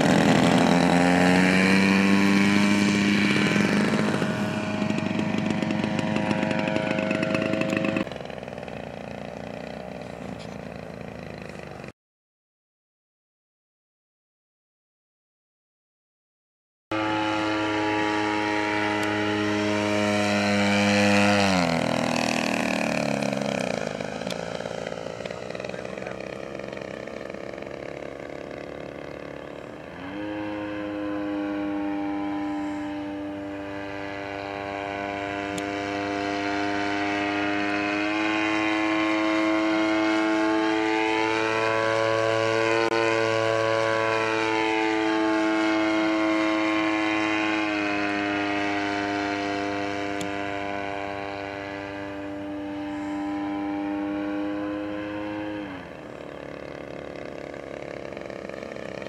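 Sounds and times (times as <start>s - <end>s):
model plane motor droning: 0.0s - 11.9s, 16.9s - 59.0s.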